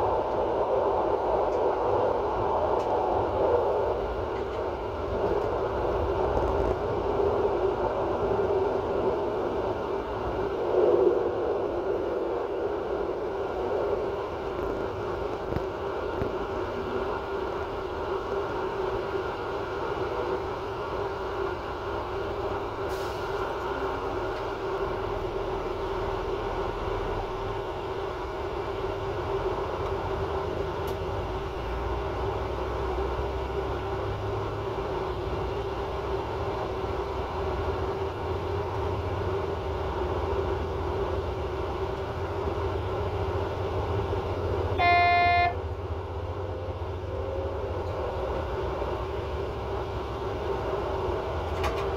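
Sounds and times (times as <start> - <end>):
train rumbling: 0.0 - 51.9
train horn toot: 44.8 - 45.7.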